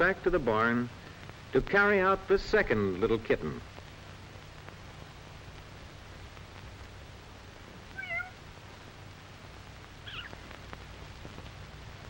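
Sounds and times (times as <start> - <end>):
steady low hum: 0.0 - 12.0
kitten mewing: 7.9 - 8.4, 10.0 - 10.4.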